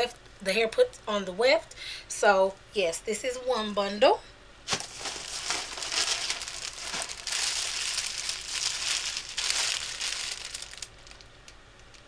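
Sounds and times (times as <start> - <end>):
packaging bag crinkling: 4.7 - 12.0.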